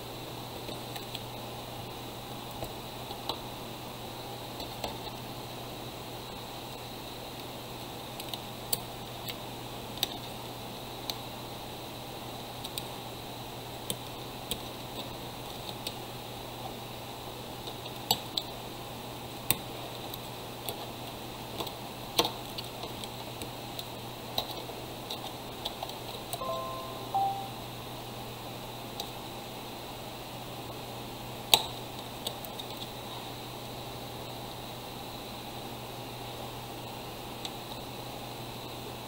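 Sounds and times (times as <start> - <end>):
low hum and hiss: 0.0 - 31.5.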